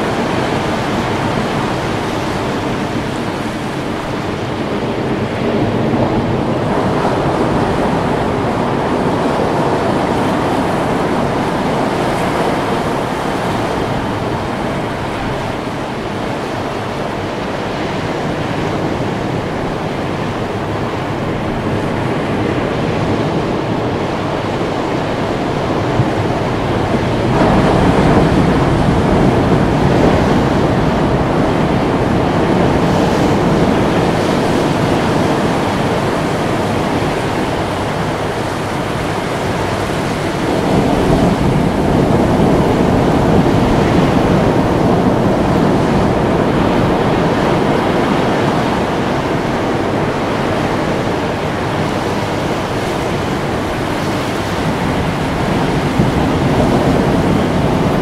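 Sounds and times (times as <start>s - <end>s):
waves breaking on rocky shore: 0.0s - 58.0s.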